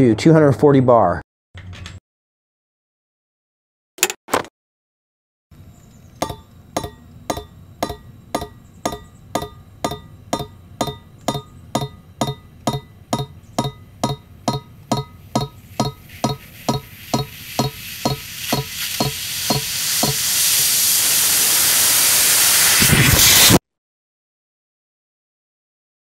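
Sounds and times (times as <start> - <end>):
hiss: 15.7 - 23.6.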